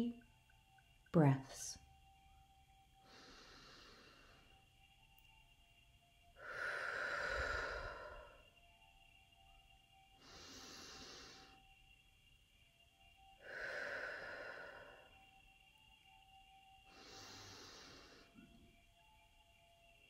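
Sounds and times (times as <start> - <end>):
person breathing deeply: 3.0 - 4.6, 6.4 - 8.6, 10.2 - 11.8, 13.4 - 15.3, 16.9 - 18.5.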